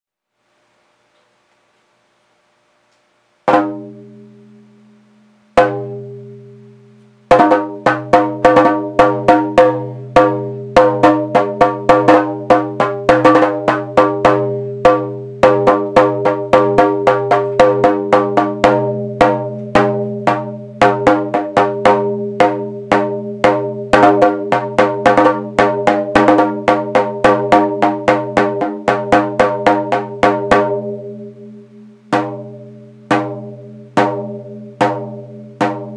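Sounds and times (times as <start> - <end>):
drum beaten in fast rhythm: 3.5 - 4.0, 5.6 - 6.0, 7.3 - 31.2, 32.1 - 35.9.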